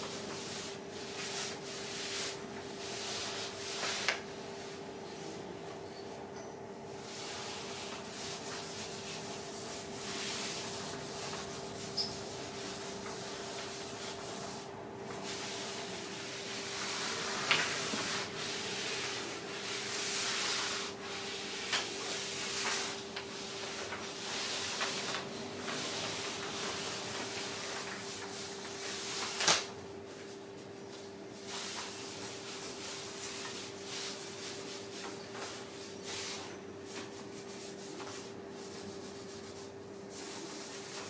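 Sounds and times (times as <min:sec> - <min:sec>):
paper rustling: 0:21.6 - 0:29.7.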